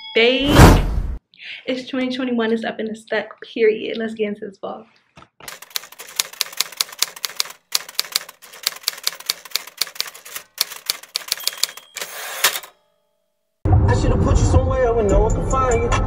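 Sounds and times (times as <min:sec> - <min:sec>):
typewriter key clacks: 0:05.5 - 0:12.7.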